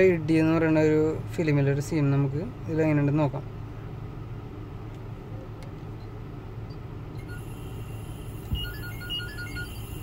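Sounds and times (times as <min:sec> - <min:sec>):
low hum in car cabin: 0:00.0 - 0:10.0.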